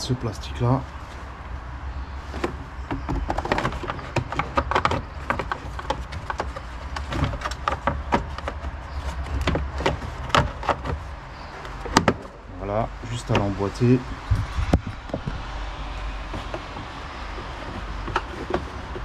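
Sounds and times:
plastic cover clicking and rattling: 0:02.9 - 0:12.4.

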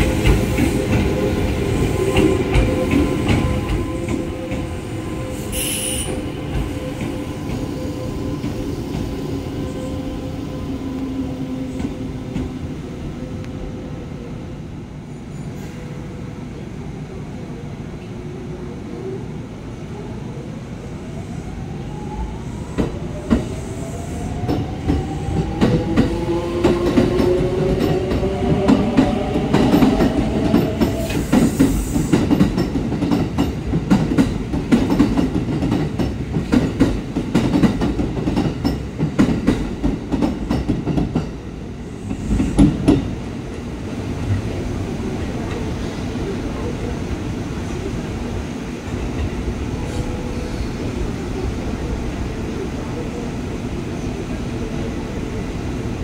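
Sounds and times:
train wheels knocking on rail joints: 0:24.4 - 0:41.4, 0:42.1 - 0:43.1.

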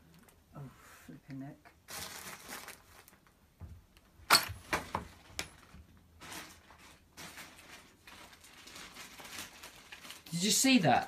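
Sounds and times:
rustling: 0:01.8 - 0:03.4, 0:05.1 - 0:10.6.

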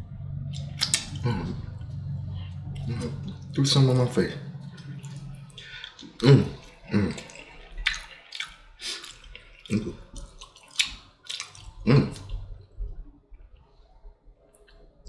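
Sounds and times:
short low hums: 0:00.0 - 0:07.8
wet chewing and lip smacks: 0:00.4 - 0:03.6, 0:04.5 - 0:13.8, 0:14.5 - 0:14.9.

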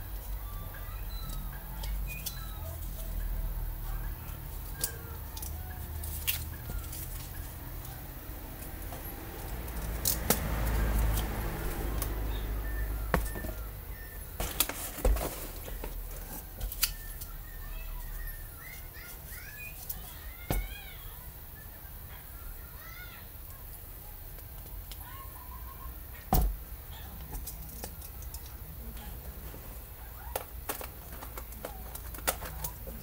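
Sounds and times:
faint bird chirps: 0:00.4 - 0:05.2, 0:16.9 - 0:23.1.

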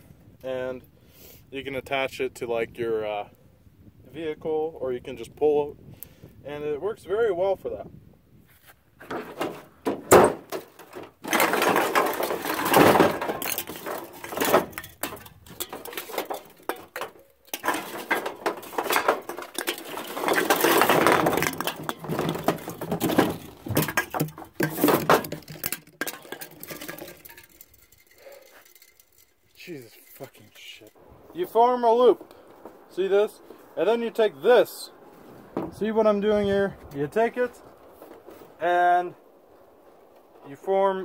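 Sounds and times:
aluminium cans clattering: 0:09.1 - 0:30.9.

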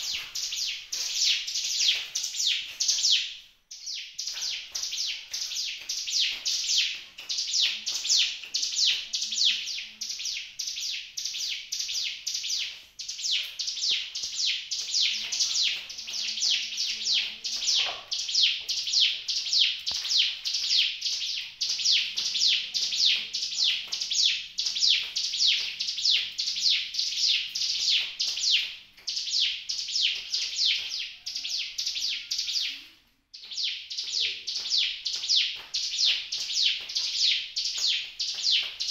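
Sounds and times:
bird high chirps: 0:00.0 - 0:38.9.

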